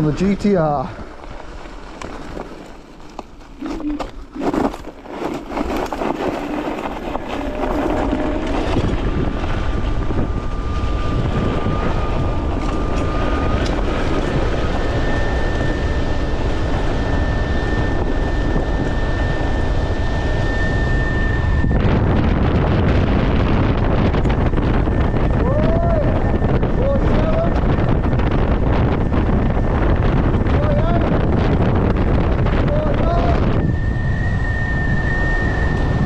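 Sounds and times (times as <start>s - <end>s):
electric scooter motor whine: 0.0s - 36.0s
wind buffeting microphone: 0.0s - 36.0s.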